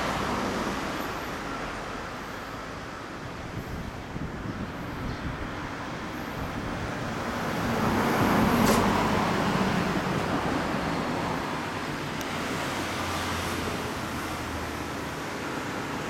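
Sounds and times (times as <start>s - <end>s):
vehicle passing by: 6.0s - 16.0s.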